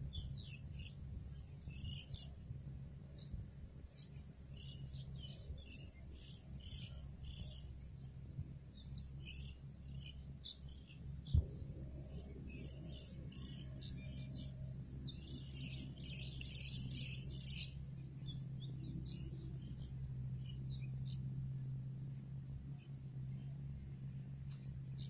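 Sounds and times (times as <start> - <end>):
small birds chirping: 0.0 - 2.4, 3.2 - 21.3
low rumble: 3.2 - 22.3.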